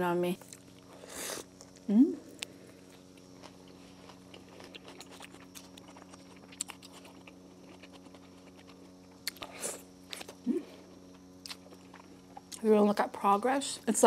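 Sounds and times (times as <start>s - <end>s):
chewing with wet mouth clicks: 1.5s - 10.4s, 11.0s - 12.6s.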